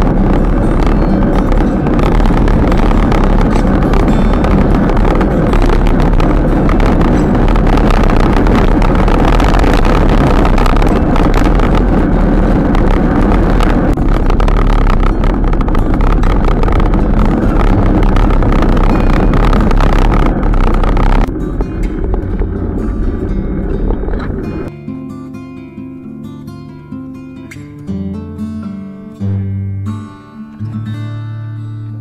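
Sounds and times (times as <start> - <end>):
wind rush on microphone: 0.0 - 24.7
low road rumble: 0.0 - 30.0.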